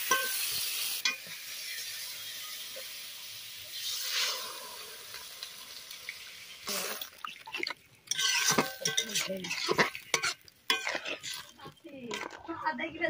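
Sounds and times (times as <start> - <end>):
curry sizzling in a wok: 0.0 - 12.5
spatula clinking on a pan: 0.1 - 0.4, 8.1 - 12.3
spatula scraping a pan: 7.5 - 12.6.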